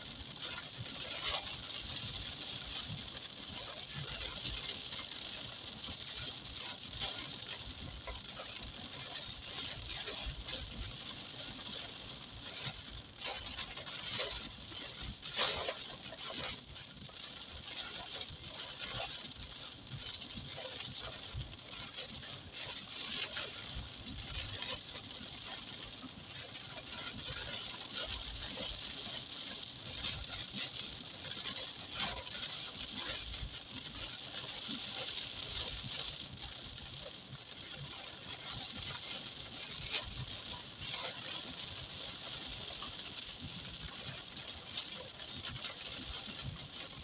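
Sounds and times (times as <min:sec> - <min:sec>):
heavy rain on car windshield: 0:00.0 - 0:47.0.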